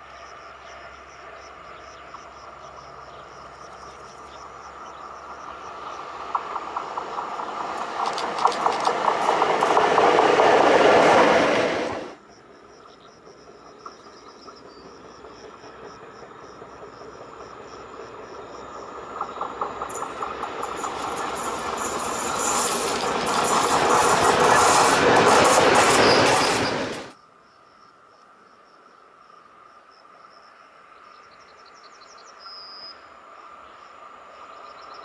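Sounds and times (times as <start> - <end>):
electric locomotive passing: 0.0 - 27.2
locomotive approaching: 0.8 - 27.2
wheels clicking over rail joints: 5.5 - 11.3, 13.4 - 27.1.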